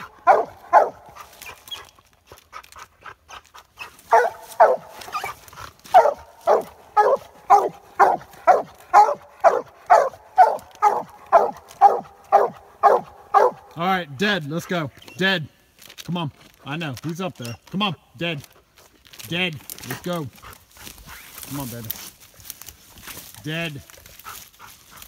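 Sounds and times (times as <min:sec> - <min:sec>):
hound barking: 0:00.0 - 0:01.9, 0:03.3 - 0:13.8.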